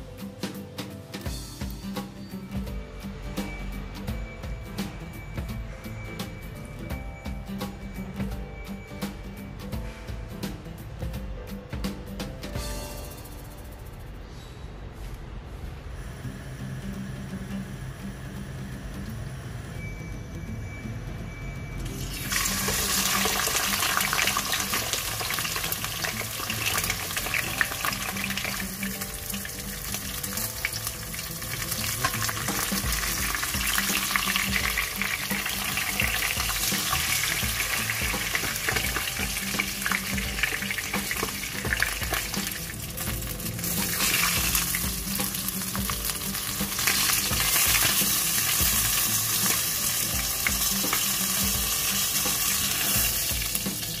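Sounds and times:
chicken sizzling in oil: 21.9 - 54.0.

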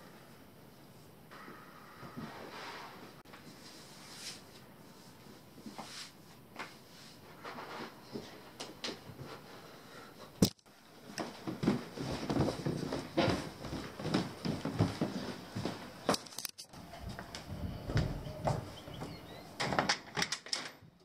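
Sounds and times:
rustling and shuffling on carpet: 10.9 - 16.1.

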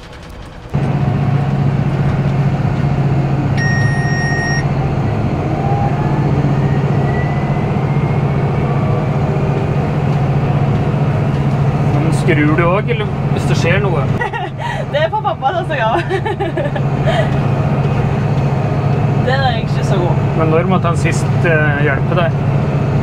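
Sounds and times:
tractor engine running: 0.0 - 5.6, 6.2 - 23.0
electronic beep: 3.6 - 4.7.

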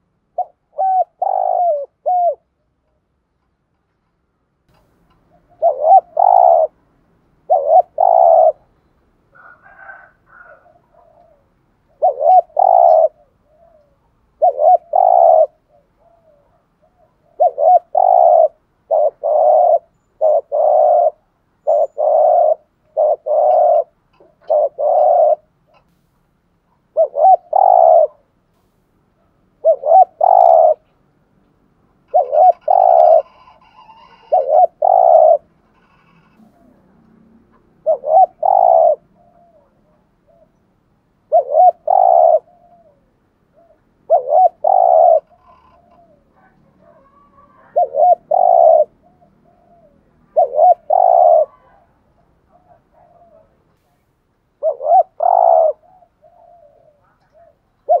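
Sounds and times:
dove cooing: 0.0 - 2.8, 5.1 - 6.8, 7.4 - 8.7, 9.3 - 25.9, 26.7 - 28.3, 29.2 - 30.9, 32.0 - 40.6, 41.2 - 58.0.

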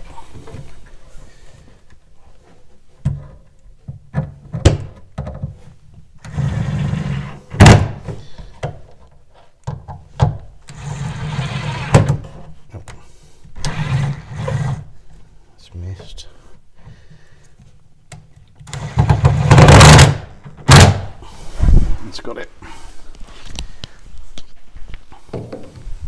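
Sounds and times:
cordless drill driving screws: 13.6 - 14.8, 18.7 - 20.9.

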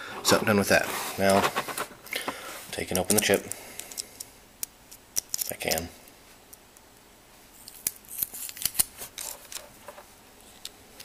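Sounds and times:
plastic packaging clicks and crinkles: 7.6 - 10.0.

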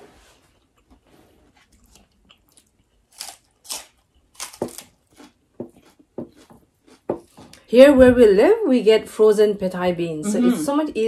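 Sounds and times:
chewing crunchy food: 0.6 - 7.7.

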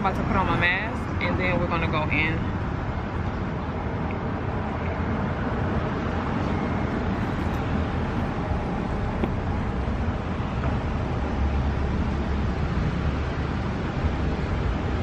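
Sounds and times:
low rumble of street traffic: 0.0 - 15.0.

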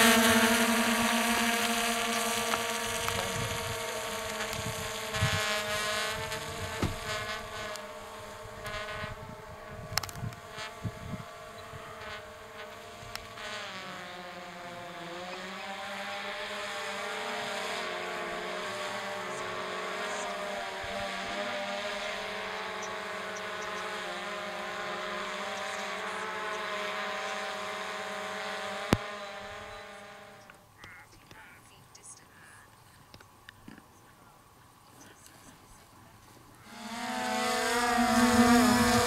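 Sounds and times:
model propeller motor: 0.0 - 30.6, 36.5 - 39.0.

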